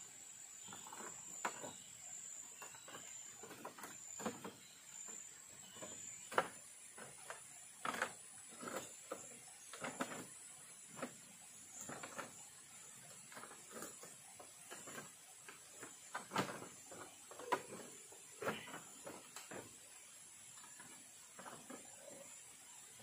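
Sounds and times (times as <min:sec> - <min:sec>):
light knocks and clatters: 0:02.6 - 0:19.9.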